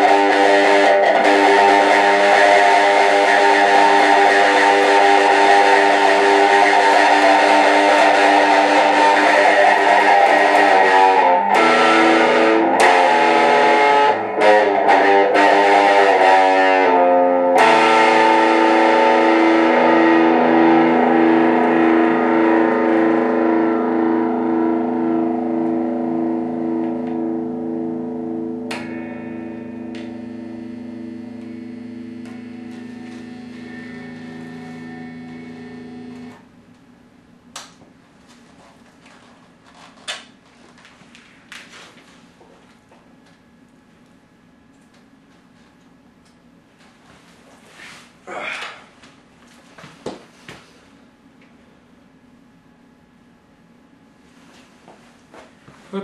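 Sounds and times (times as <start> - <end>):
distorted electric guitar chords: 0.0 - 36.5.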